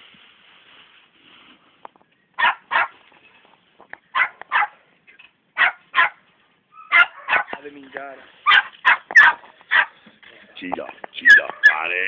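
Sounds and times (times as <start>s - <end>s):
puppies barking high-pitched: 2.4s - 3.0s, 4.1s - 4.8s, 5.6s - 6.2s, 6.8s - 7.6s, 8.4s - 10.0s, 11.2s - 11.9s.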